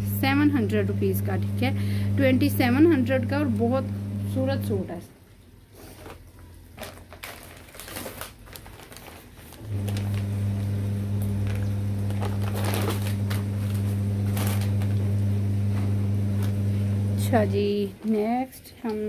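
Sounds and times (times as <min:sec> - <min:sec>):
low electrical hum: 0:00.0 - 0:19.0
plastic packaging crinkling: 0:05.7 - 0:15.1.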